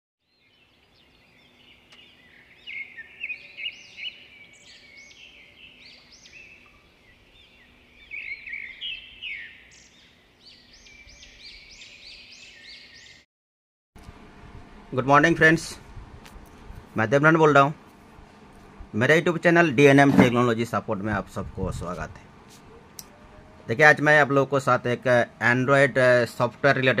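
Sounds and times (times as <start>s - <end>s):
birds chirping: 0.2s - 13.2s.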